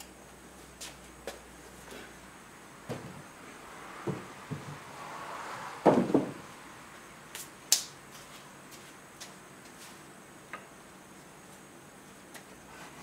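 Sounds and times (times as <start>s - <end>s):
wooden thumps: 5.8s - 6.4s.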